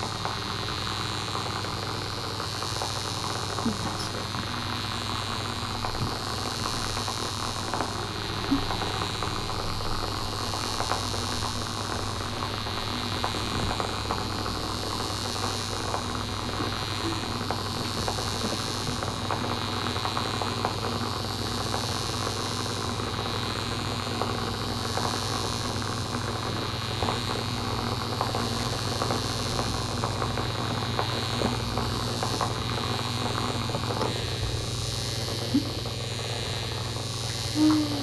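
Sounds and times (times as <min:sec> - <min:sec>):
thin high whine: 0:00.0 - 0:24.4, 0:25.0 - 0:38.0
low hum: 0:37.2 - 0:38.0.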